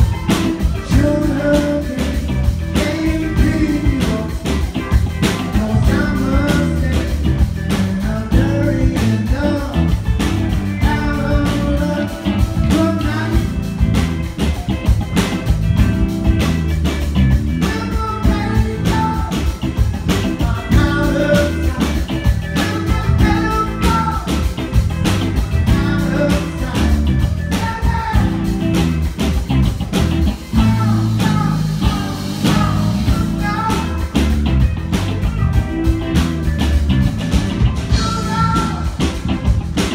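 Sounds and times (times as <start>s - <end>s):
sung lead vocal: 0.0s - 14.0s, 17.5s - 24.7s, 25.4s - 28.8s, 30.4s - 34.4s, 37.9s - 39.2s
bass guitar: 0.0s - 39.9s
drum kit: 0.0s - 39.9s
electric guitars: 0.0s - 39.9s.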